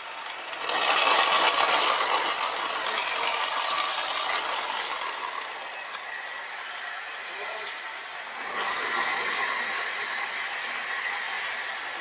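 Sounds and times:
grinding rattling car transmission: 0.0 - 6.0.

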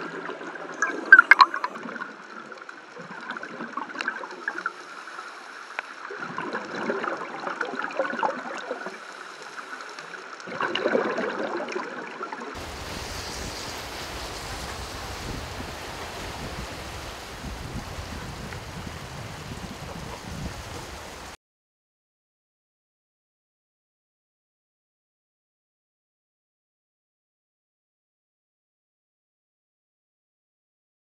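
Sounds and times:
shallow water rushing: 12.6 - 21.4.

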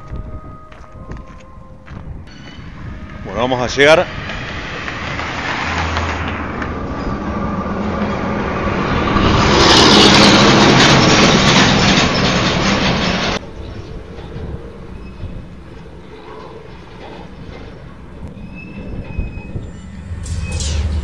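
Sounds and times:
semi-truck driving past: 2.3 - 13.4, 18.4 - 21.0.

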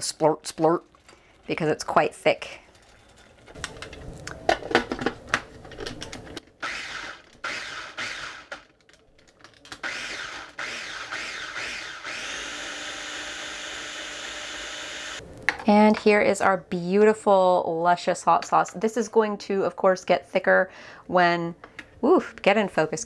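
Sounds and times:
food chopper motor whirring: 6.6 - 8.6, 9.8 - 15.2.

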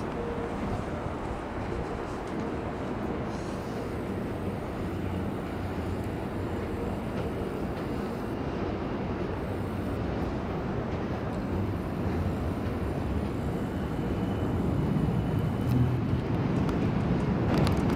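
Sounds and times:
low rumble of city traffic: 0.0 - 17.9.

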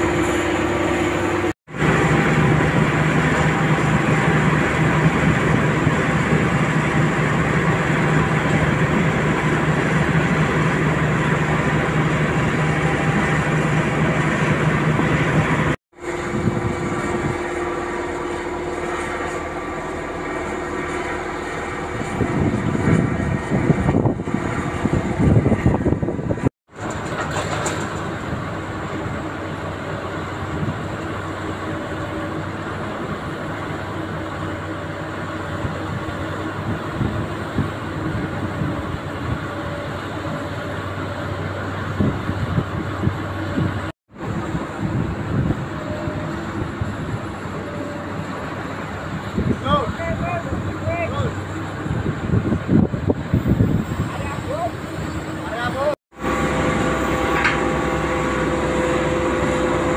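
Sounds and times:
vibratory pile hammer humming: 0.0 - 27.0, 56.1 - 59.9
diesel engines: 0.0 - 59.9.

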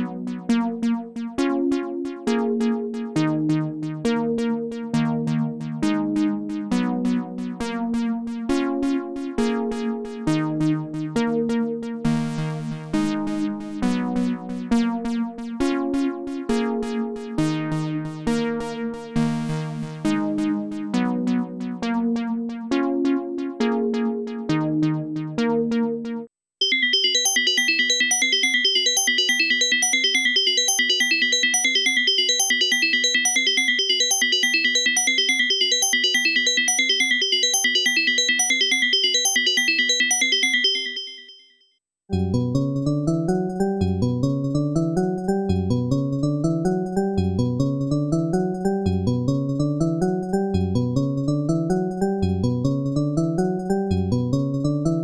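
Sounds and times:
synthesizer repeated chords: 18.8 - 41.3.

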